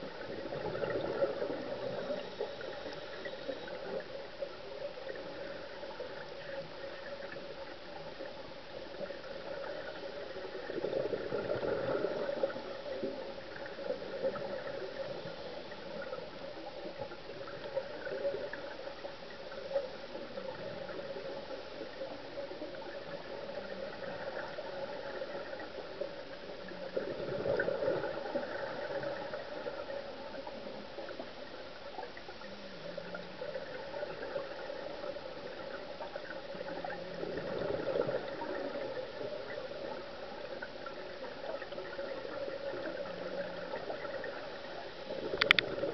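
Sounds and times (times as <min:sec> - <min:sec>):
muffled underwater hiss: 0:00.0 - 0:45.9
regulator bubbles: 0:33.0 - 0:44.5, 0:45.1 - 0:45.9.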